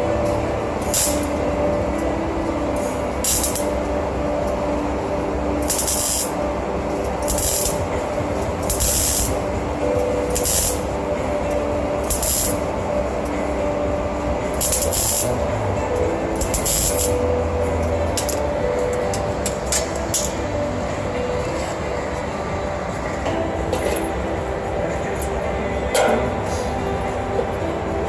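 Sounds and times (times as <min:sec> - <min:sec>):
welding arc crackling and hissing: 0:00.0 - 0:20.6.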